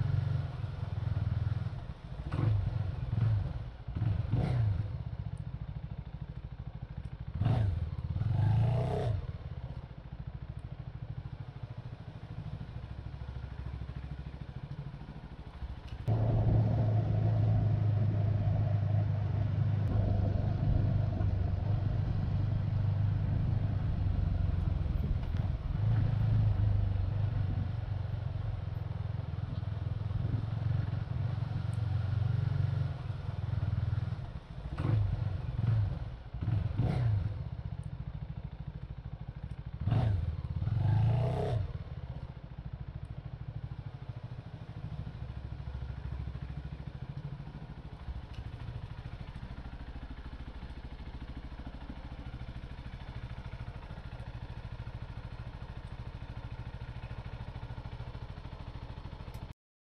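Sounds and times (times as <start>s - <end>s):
motorcycle engine revving and idling: 0.0s - 59.5s.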